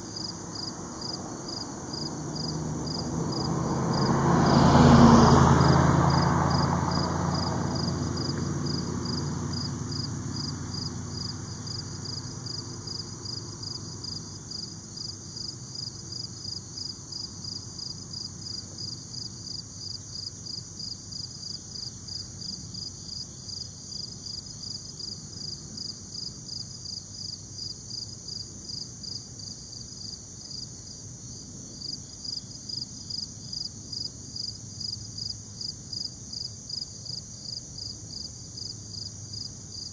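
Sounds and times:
passing vehicle: 0.1 - 19.5.

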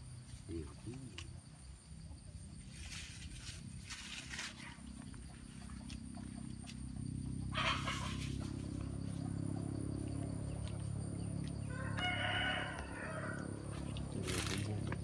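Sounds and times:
rooster crowing: 7.5 - 8.2, 11.6 - 13.8.

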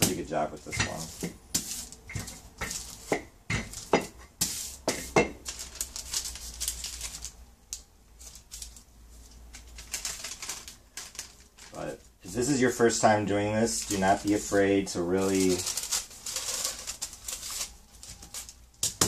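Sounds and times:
wax paper crinkling: 0.0 - 19.0.

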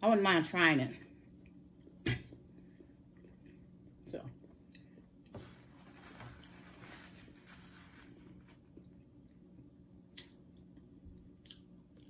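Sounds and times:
faint low hum: 0.0 - 12.0
chewing and wet mouth sounds: 1.1 - 5.3, 8.2 - 12.0.

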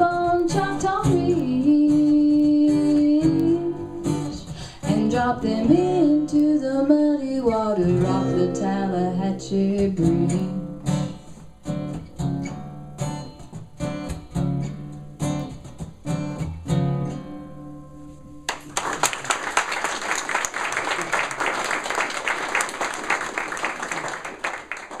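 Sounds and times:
acoustic guitars strumming: 0.0 - 18.7
audience applause: 18.5 - 25.0.

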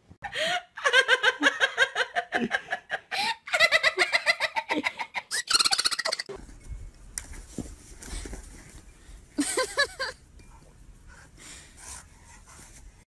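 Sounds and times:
high-pitched giggling laughter: 0.8 - 6.4, 9.4 - 10.2.

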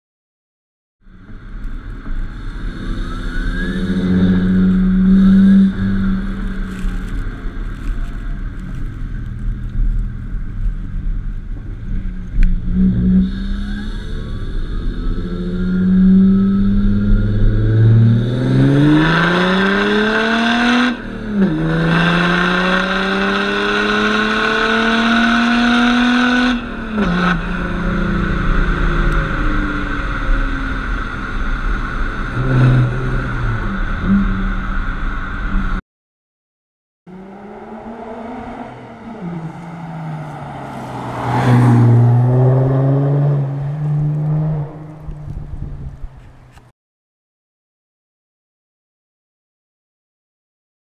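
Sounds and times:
diesel car engine accelerating: 1.1 - 35.8, 37.1 - 46.6
wind rushing past: 37.1 - 46.2.

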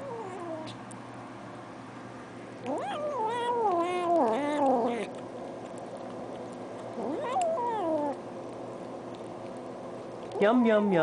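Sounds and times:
cat meowing: 2.7 - 5.1, 7.0 - 8.2.

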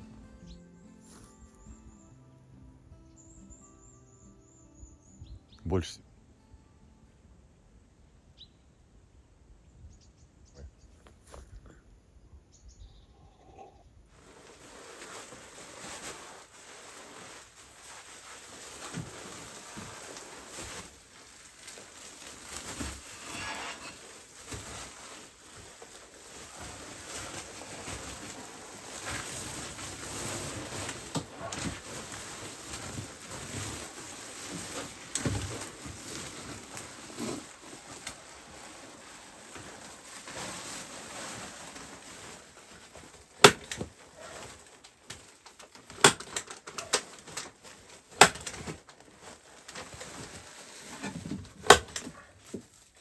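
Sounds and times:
foil insulation crinkling: 14.1 - 53.0.

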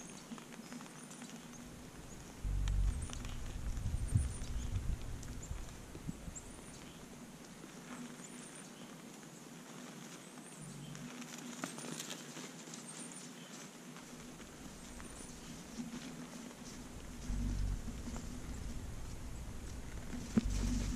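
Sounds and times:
crunches in snow: 0.0 - 20.9
low steady hum: 1.5 - 7.4, 14.2 - 20.9.

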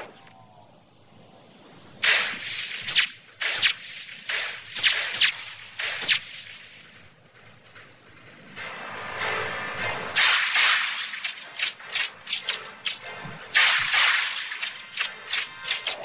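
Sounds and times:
sharp whip-like swishes: 2.0 - 6.6, 10.2 - 16.0.

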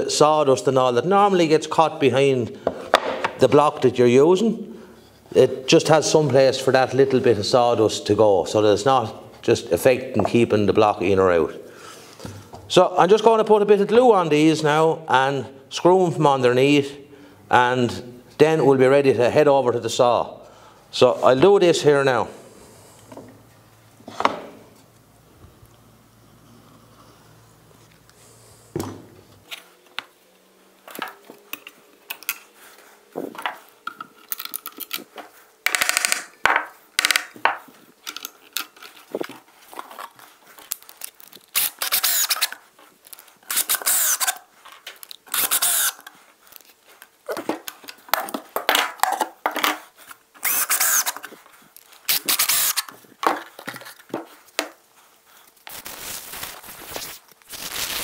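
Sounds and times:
cordless drill driving screws: 41.6 - 42.6, 43.5 - 44.4, 45.3 - 46.0, 50.4 - 51.2, 52.1 - 52.9
wooden parts and tools clattering: 47.3 - 49.8.

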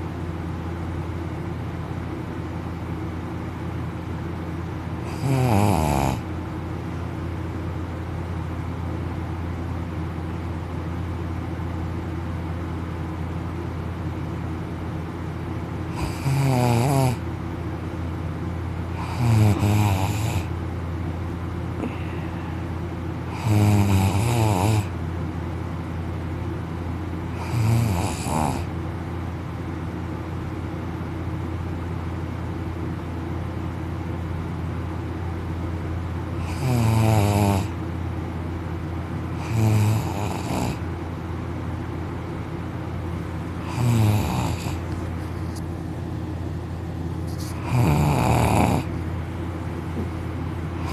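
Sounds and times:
steady low hum: 0.0 - 50.9
man snoring loudly: 5.0 - 6.3, 15.9 - 17.2, 19.0 - 20.5, 23.3 - 24.9, 27.4 - 28.7, 36.4 - 37.8, 39.4 - 40.8, 43.6 - 44.8, 47.5 - 48.9.

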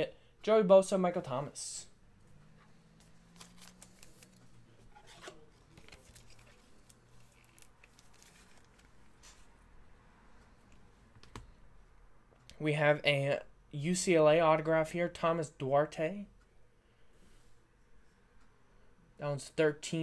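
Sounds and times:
trading cards clicking and rustling: 2.9 - 9.5.

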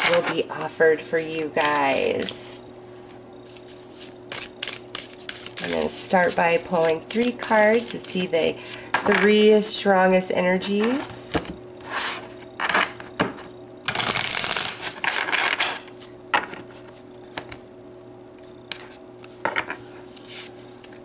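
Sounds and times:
cards riffle shuffled: 3.5 - 5.8, 13.9 - 16.1.

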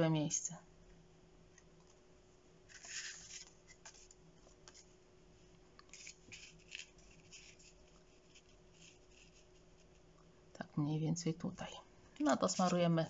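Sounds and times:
paper rustling and scraping: 2.7 - 5.0, 5.9 - 10.0, 12.4 - 13.0.

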